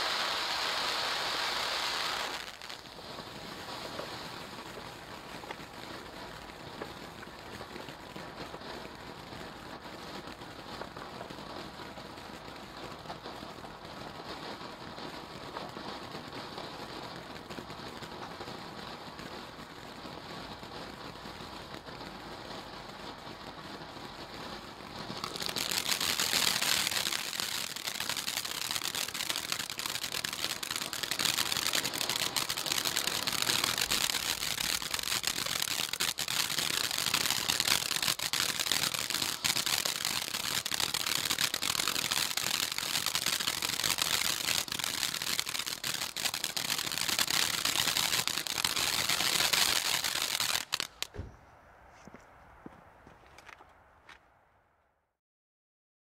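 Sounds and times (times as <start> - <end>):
firework fountain hissing and crackling: 0.0 - 51.1.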